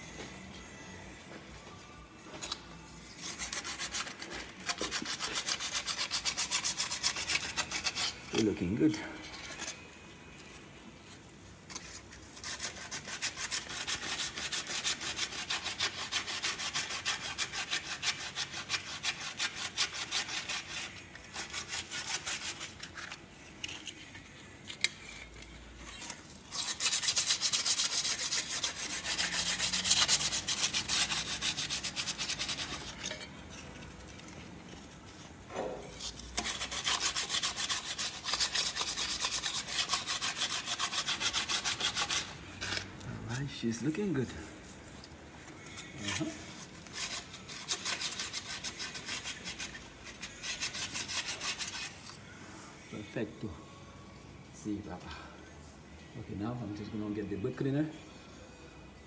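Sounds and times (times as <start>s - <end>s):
hand scrubbing strokes: 26.5s - 32.9s, 36.0s - 42.3s.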